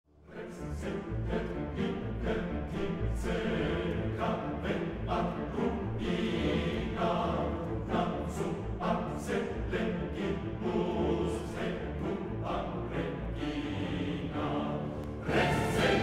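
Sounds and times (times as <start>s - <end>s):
choir singing: 0.2s - 16.0s
orchestra playing: 14.0s - 16.0s.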